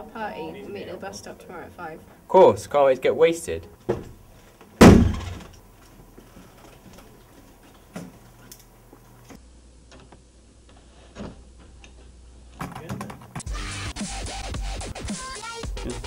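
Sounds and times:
low room hum: 0.0s - 12.6s
door shutting with a thud: 4.8s - 5.5s.

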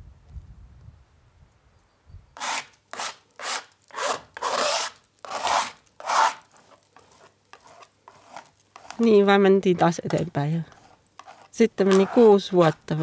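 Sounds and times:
paint scraping across canvas: 2.4s - 9.4s, 10.0s - 12.8s.

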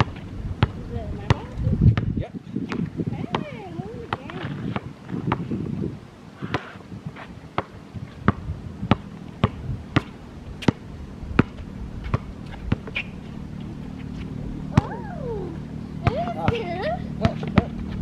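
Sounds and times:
basketball bouncing on hard court: 0.0s - 2.1s, 2.7s - 5.5s, 7.6s - 10.8s.

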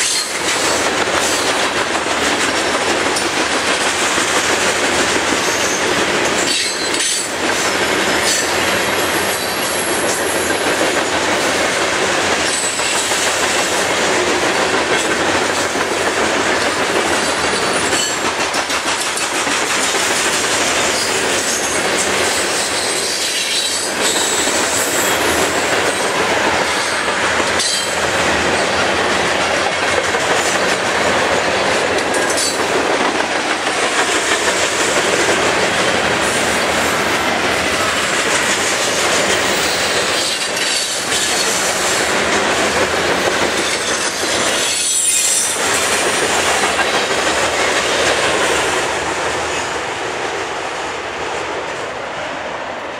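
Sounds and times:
freight train wheels rumbling: 0.0s - 52.9s
wheels squealing: 43.6s - 45.6s.

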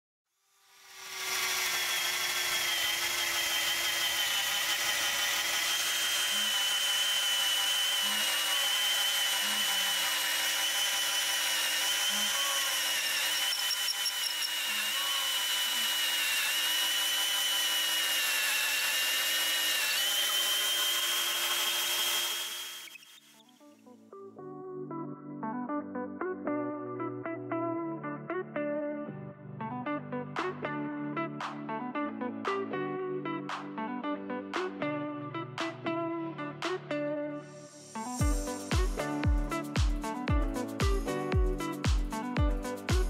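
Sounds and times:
cordless drill boring into wood: 0.7s - 23.6s.

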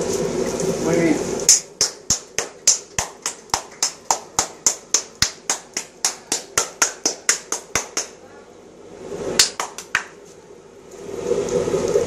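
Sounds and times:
hands clapping: 1.5s - 8.2s, 9.4s - 10.2s.

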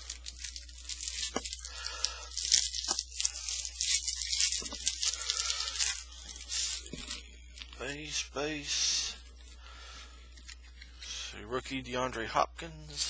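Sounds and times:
foil wrapper crinkling: 0.0s - 11.2s.

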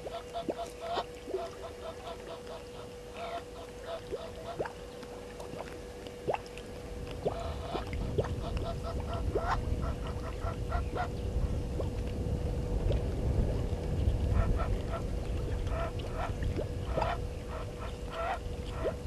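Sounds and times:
geese honking: 0.0s - 4.6s, 7.2s - 11.1s, 15.7s - 19.0s
low rumble: 4.1s - 19.0s.

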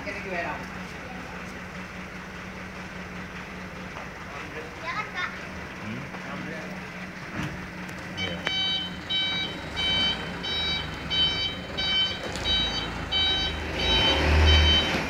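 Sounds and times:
truck engine humming: 0.0s - 15.0s
truck reversing alarm beeping: 8.2s - 15.0s.

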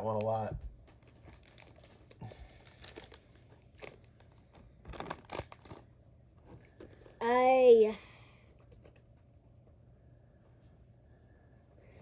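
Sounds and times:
wrapper crinkling and tearing: 0.0s - 5.9s
cards rustling and clicking: 0.1s - 5.9s.

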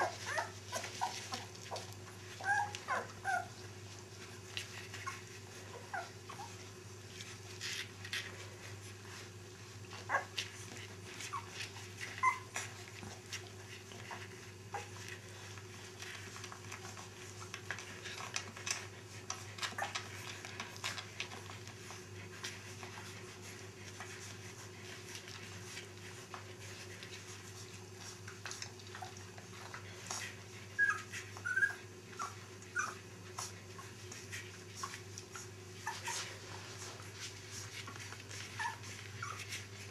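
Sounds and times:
puppies squeaking and whimpering: 0.0s - 3.7s, 4.8s - 6.7s, 9.9s - 15.6s, 19.6s - 20.6s, 28.9s - 37.0s, 37.6s - 39.9s
small clicks and rustles: 0.0s - 39.9s.

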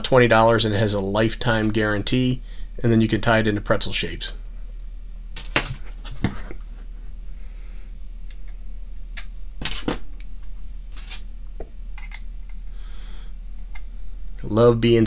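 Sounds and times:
low hum: 0.0s - 15.0s
metal connectors clicking and scraping: 12.0s - 12.6s.

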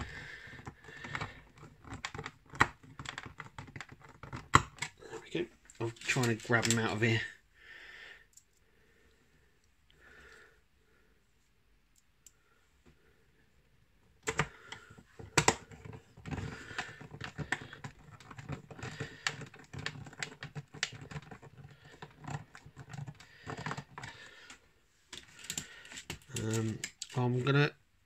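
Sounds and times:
screwdriver clicking and scraping: 0.0s - 5.0s, 14.2s - 27.2s.

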